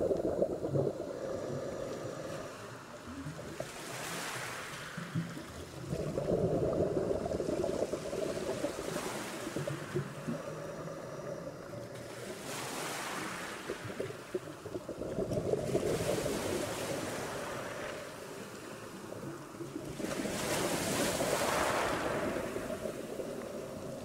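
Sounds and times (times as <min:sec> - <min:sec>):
underwater hiss: 0:00.0 - 0:19.4, 0:20.0 - 0:24.0
underwater crackling and bubbling: 0:00.0 - 0:24.0.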